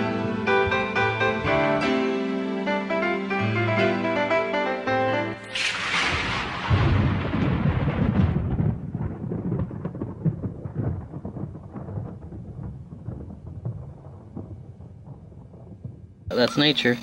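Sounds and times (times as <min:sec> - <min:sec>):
rushing crash: 0:05.4 - 0:10.1
deep rumble with crackles: 0:05.5 - 0:16.3.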